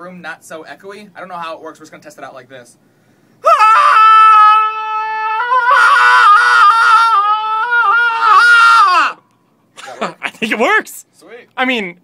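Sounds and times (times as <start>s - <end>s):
man screaming: 3.4s - 9.2s.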